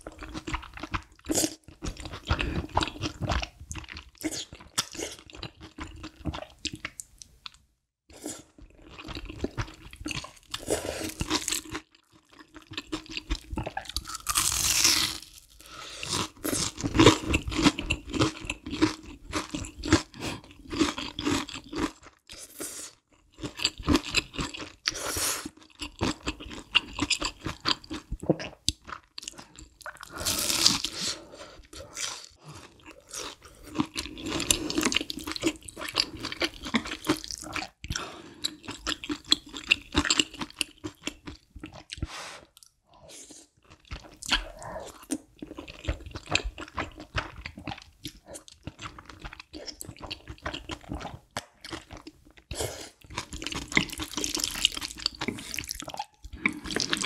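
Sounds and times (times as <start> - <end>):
wet chewing: 43.8 - 57.0.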